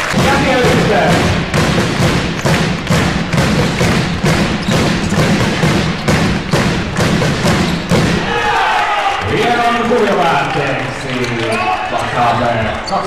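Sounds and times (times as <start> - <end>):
drum thumps: 0.0 - 8.6.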